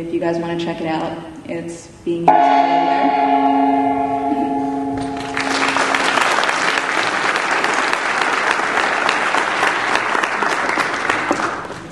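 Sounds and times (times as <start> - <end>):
gong ringing: 2.3 - 7.0
audience applauding: 5.0 - 11.9.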